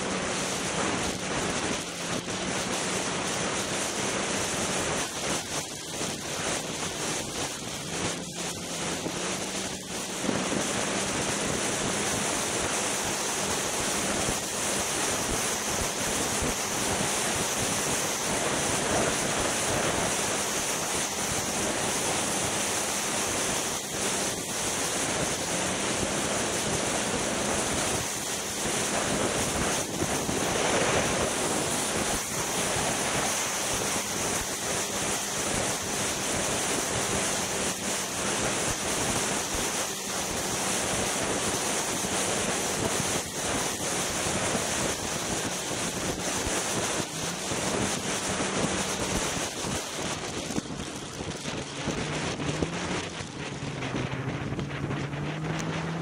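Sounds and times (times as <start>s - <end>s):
snowmobile engine running: 0.0s - 56.0s
wind on microphone: 0.0s - 56.0s.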